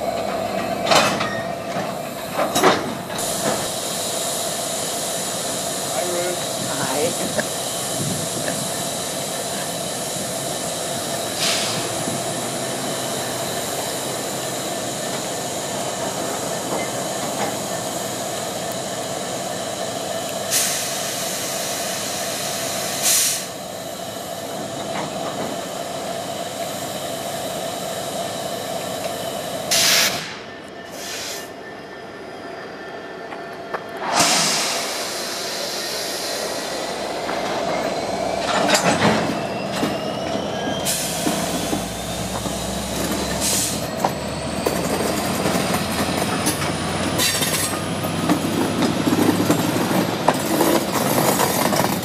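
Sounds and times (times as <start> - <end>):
locomotive engine drone: 0.0 - 52.0
air brakes hissing: 3.1 - 19.5, 20.4 - 24.6, 29.1 - 31.6, 34.0 - 44.3.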